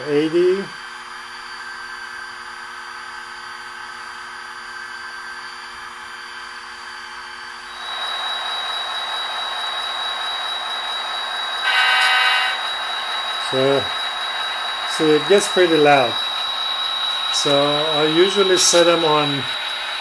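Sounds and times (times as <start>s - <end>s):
diesel locomotive idling through speaker: 0.0s - 0.8s, 7.7s - 20.0s
high steady whine: 7.6s - 20.0s.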